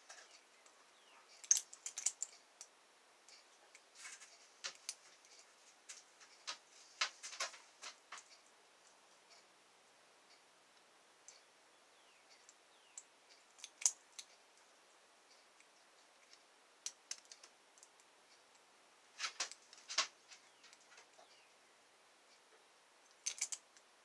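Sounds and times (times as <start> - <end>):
lock pick clicking in padlock: 23.2 - 23.6.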